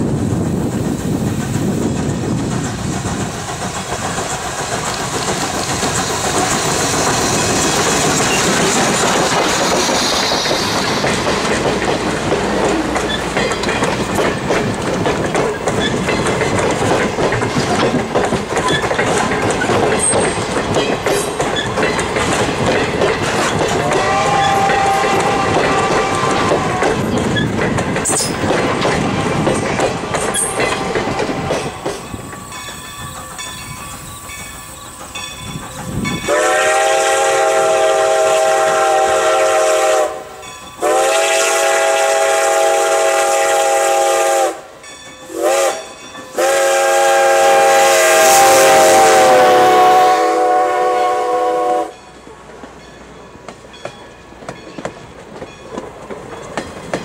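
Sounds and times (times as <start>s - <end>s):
train wheels clicking over rail joints: 0.0s - 57.0s
distant steam whistle: 23.8s - 27.0s, 36.2s - 52.0s
loud steam locomotive whistle blasts: 23.8s - 27.0s, 36.2s - 52.0s.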